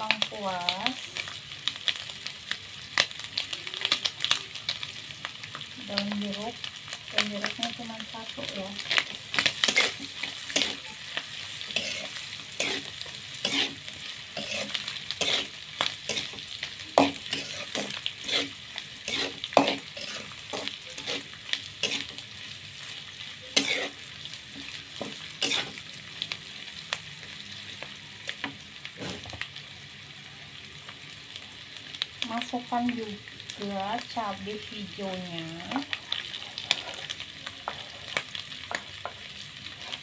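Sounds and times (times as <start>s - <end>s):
food sizzling in oil: 0.0s - 40.0s
metal spatula scraping a pan: 8.8s - 16.4s, 17.0s - 22.2s, 23.5s - 25.8s, 36.2s - 38.8s.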